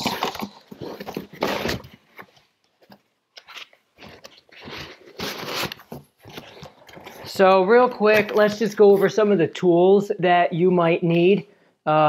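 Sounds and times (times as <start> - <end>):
cardboard box rustling: 0.0 - 9.2.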